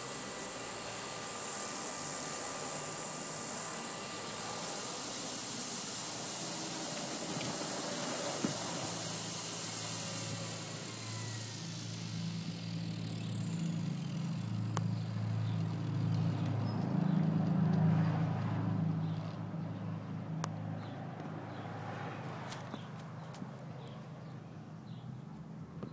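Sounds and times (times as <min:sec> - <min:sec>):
helicopter rotor spinning down: 0:00.0 - 0:18.4.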